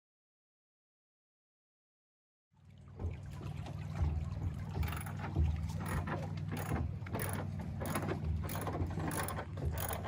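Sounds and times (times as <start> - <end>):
ratchet clicking: 6.6 - 10.0.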